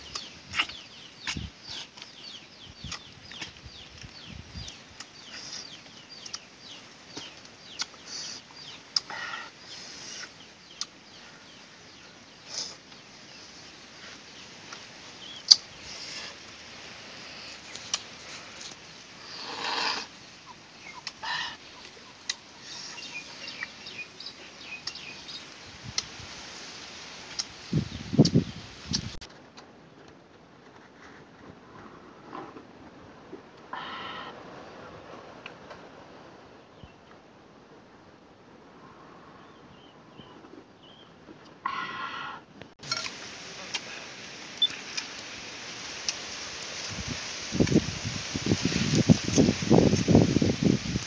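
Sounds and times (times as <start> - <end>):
small birds chirping: 0.0 - 29.3, 43.6 - 45.3.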